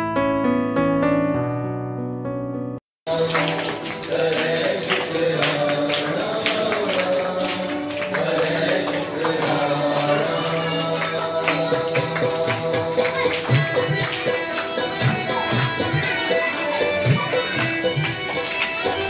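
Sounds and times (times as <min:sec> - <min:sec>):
steady percussion beat: 0:03.1 - 0:19.0.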